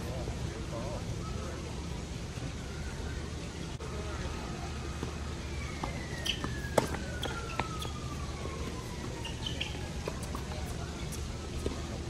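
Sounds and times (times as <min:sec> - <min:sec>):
tennis ball struck by racquets: 0:05.8 - 0:08.1.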